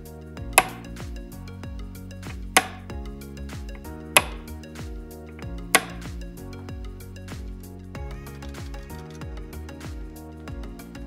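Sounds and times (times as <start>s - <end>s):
background music with steady beat: 0.0s - 11.0s
light switch clicks: 0.6s - 0.9s, 2.6s - 2.8s, 4.2s - 4.5s, 5.8s - 6.0s.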